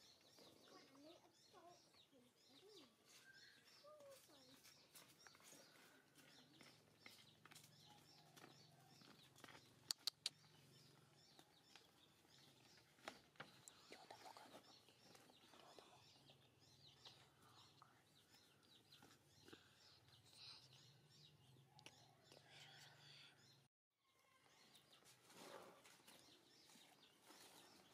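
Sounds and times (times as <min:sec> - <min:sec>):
birds chirping: 0:00.0 - 0:27.9
sharp clicks: 0:09.8 - 0:10.4.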